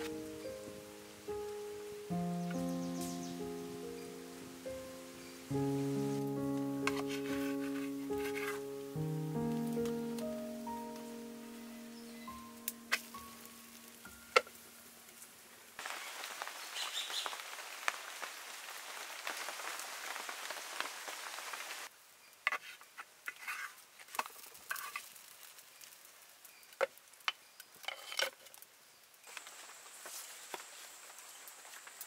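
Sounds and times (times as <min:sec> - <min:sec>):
wood fire crackling: 0:00.0 - 0:22.0, 0:23.2 - 0:32.0
bread sizzling on pan: 0:15.8 - 0:21.9, 0:22.8 - 0:32.0.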